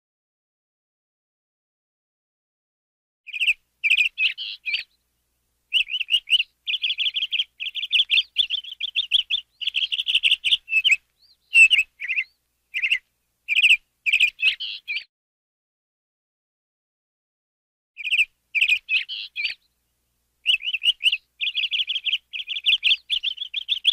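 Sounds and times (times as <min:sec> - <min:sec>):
canary singing: 0:03.3 - 0:05.0, 0:05.7 - 0:15.1, 0:18.0 - 0:23.9.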